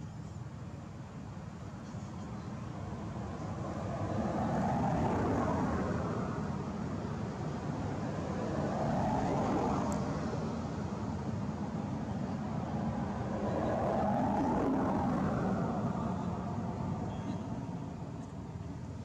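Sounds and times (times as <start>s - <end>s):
passing traffic rumble: 0.6s - 19.0s.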